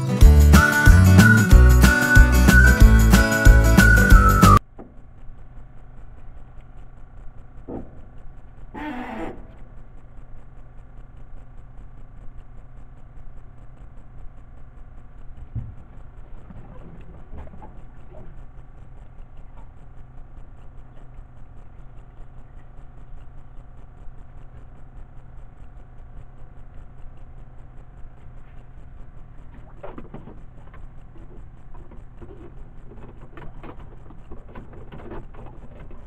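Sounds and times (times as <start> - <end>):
boat motor humming: 0.0 - 4.6.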